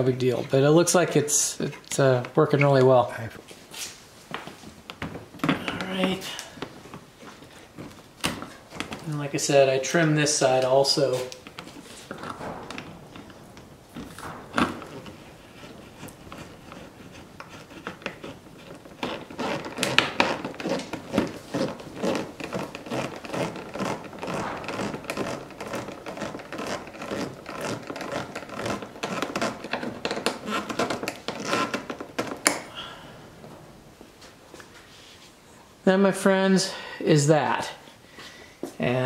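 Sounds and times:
clicking and scraping on plastic: 0:04.3 - 0:09.2, 0:11.2 - 0:32.7.

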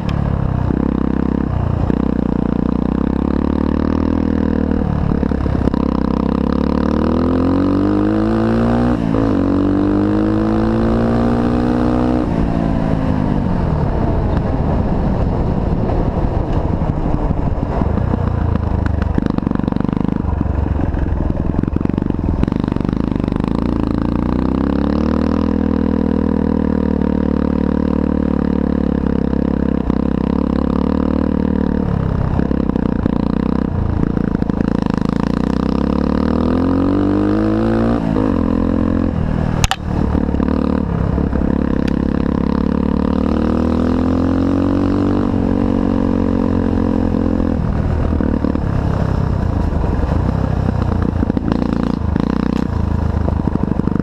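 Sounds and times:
dirt bike engine revving: 0:00.7 - 0:12.7, 0:32.4 - 0:49.0.

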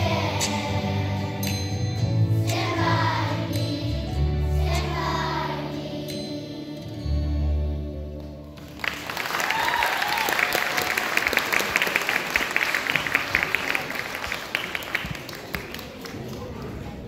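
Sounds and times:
children's choir singing: 0:00.0 - 0:08.2
audience clapping: 0:08.5 - 0:16.7.

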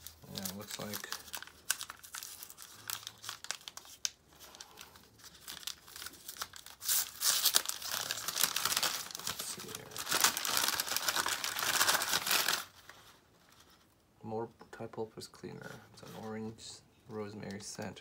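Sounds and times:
packing paper crinkling: 0:00.0 - 0:13.9.

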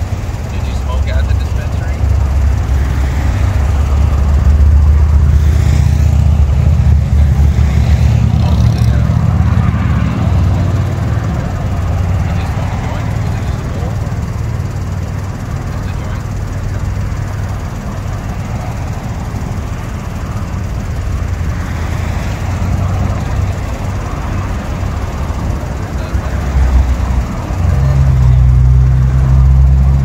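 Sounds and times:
cars passing: 0:00.0 - 0:30.0
heavy vehicle engine hum: 0:00.0 - 0:30.0
low engine hum: 0:00.0 - 0:30.0.

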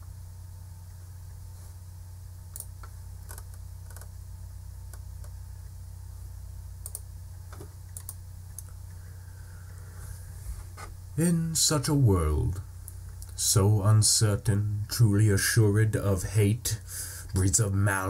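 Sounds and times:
steady low hum: 0:00.0 - 0:18.0
small sharp clicks: 0:02.5 - 0:04.1, 0:06.8 - 0:08.8.

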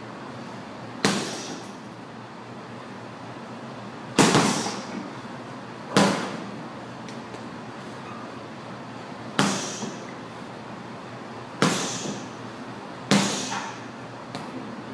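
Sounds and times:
punches on heavy bag: 0:01.0 - 0:01.7, 0:04.1 - 0:05.0, 0:05.9 - 0:06.5, 0:09.4 - 0:10.0, 0:11.6 - 0:12.3, 0:13.1 - 0:13.8.

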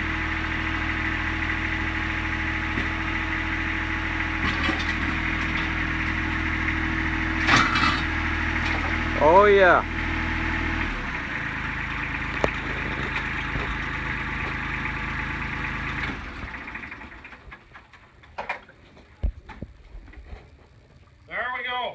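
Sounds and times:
tractor diesel engine idling: 0:00.0 - 0:19.2.

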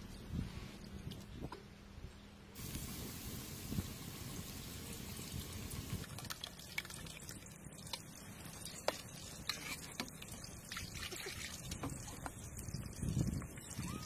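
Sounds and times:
onions sizzling in oil: 0:02.6 - 0:06.0
wet clicks and drips: 0:06.0 - 0:13.5.

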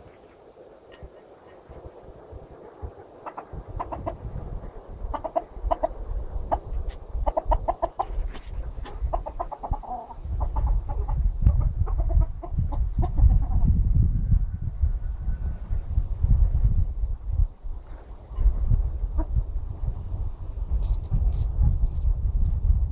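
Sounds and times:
chickens clucking: 0:00.8 - 0:13.8
low rumble: 0:10.2 - 0:22.9.

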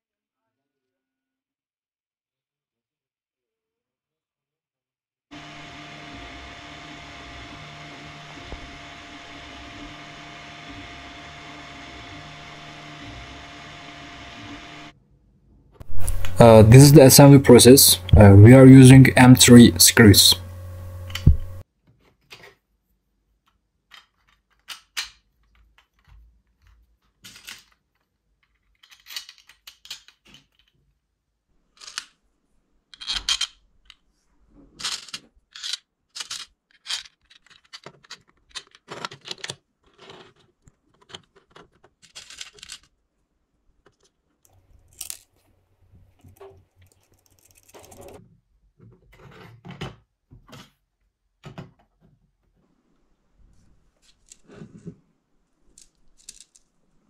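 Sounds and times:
plastic parts clicking and clattering: 0:23.4 - 0:31.1, 0:31.7 - 0:43.1, 0:43.8 - 0:45.5, 0:46.1 - 0:50.8, 0:54.0 - 0:55.0, 0:55.6 - 0:56.8.

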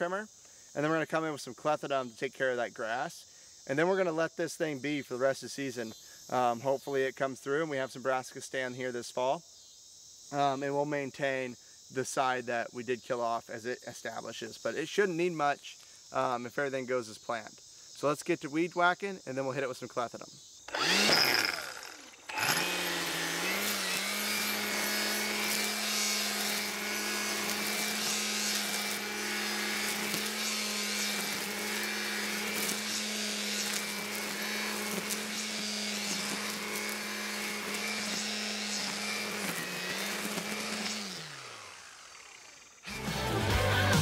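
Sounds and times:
string trimmer cutting grass: 0:20.7 - 0:44.0.

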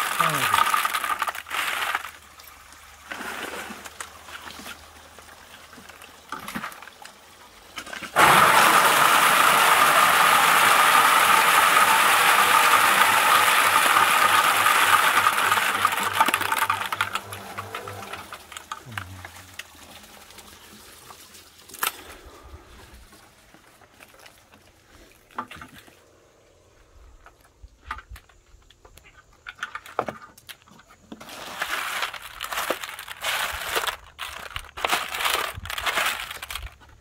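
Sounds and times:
walnuts clattering into plastic crate: 0:00.0 - 0:02.3, 0:07.8 - 0:19.6, 0:29.1 - 0:37.0
electric motor humming: 0:08.2 - 0:19.4.

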